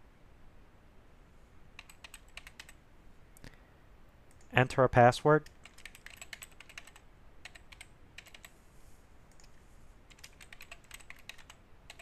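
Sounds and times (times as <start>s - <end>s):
faint keyboard typing: 1.8s - 2.8s, 5.4s - 8.6s, 9.2s - 12.0s.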